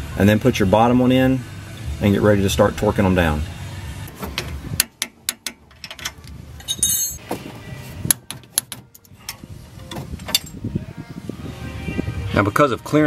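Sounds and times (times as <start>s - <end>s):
ringing metallic clink: 5.8s - 7.2s.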